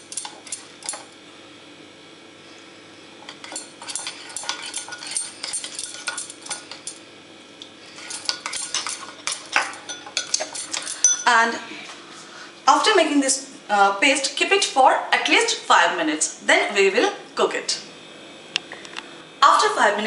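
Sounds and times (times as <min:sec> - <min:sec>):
spoon clinking and scraping bowl: 0:00.0 - 0:01.1, 0:03.2 - 0:07.0, 0:07.9 - 0:11.3.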